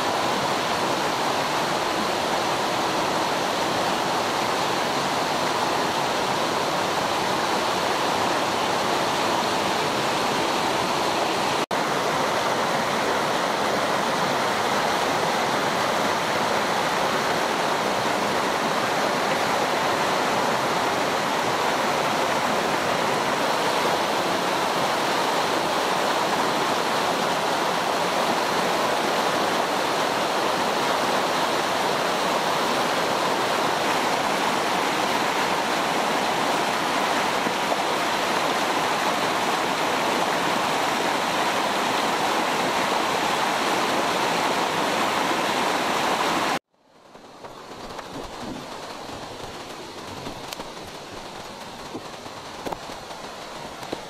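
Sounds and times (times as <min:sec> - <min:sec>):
stream rushing over boulders: 0:00.0 - 0:54.0.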